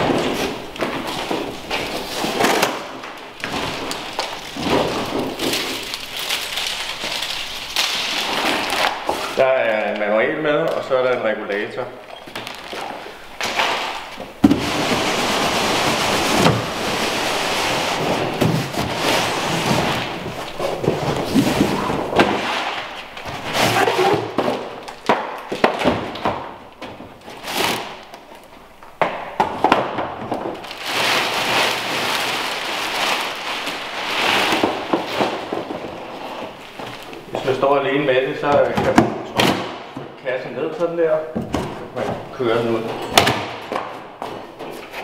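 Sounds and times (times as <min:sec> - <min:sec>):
cardboard packaging pulled apart: 0:00.0 - 0:09.4, 0:30.5 - 0:37.2
plastic wrapping crinkling: 0:00.0 - 0:29.0, 0:29.6 - 0:39.9.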